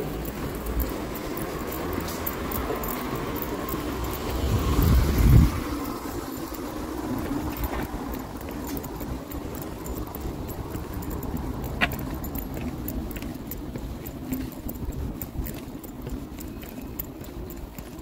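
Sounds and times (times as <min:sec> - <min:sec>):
footsteps on wet pavement: 0:00.0 - 0:18.0.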